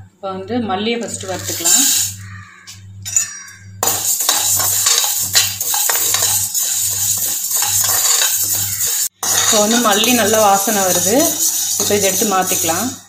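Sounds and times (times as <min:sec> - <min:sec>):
seeds rattling in metal pan: 0:01.0 - 0:02.3, 0:03.2 - 0:13.0.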